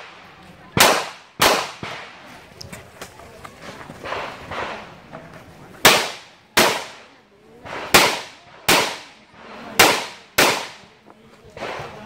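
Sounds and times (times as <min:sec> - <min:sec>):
pistol shots with echo: 0:00.0 - 0:02.2, 0:05.8 - 0:09.2, 0:09.8 - 0:10.9.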